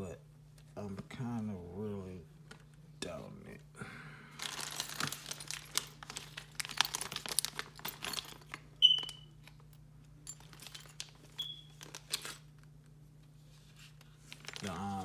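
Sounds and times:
plastic packaging crinkling: 0:04.4 - 0:09.2, 0:10.4 - 0:12.7, 0:14.2 - 0:15.0.

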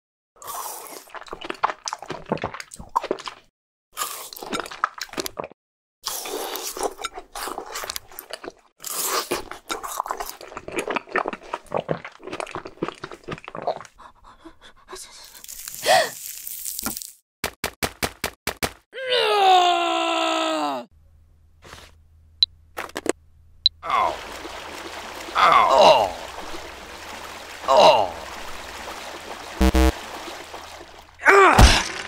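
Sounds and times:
crunching and chewing: 0:00.4 - 0:14.0, 0:15.3 - 0:17.2.

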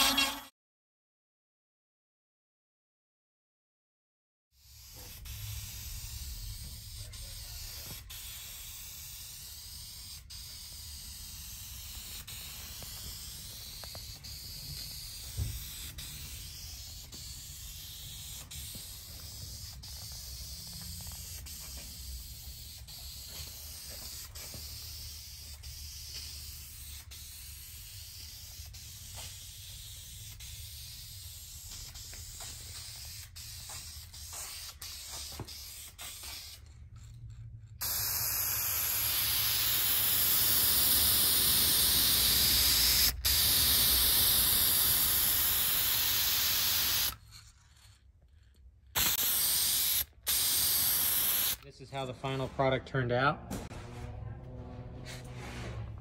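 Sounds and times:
aerosol spray can hissing: 0:04.6 - 0:36.6, 0:37.8 - 0:47.2, 0:49.0 - 0:51.6.

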